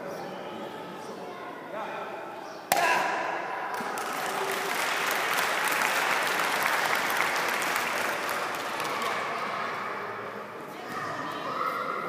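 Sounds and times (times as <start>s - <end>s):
audience clapping: 3.7s - 9.4s.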